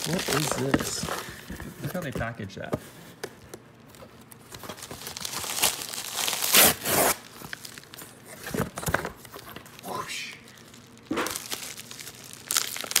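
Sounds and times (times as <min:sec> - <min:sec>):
loud paper rip: 0:00.0 - 0:01.0, 0:05.1 - 0:07.4
cardboard and paper rustling: 0:00.0 - 0:09.8, 0:10.5 - 0:13.0.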